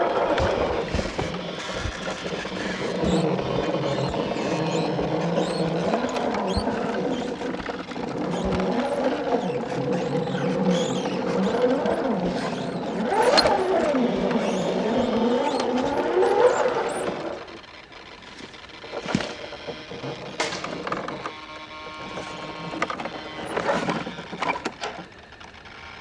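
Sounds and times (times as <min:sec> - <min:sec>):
electric motor whining: 0:00.0 - 0:26.0.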